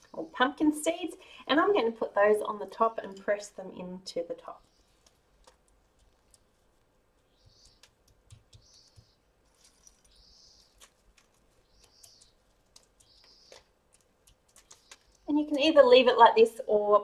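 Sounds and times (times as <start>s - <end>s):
soft rustles: 4.5s - 15.3s.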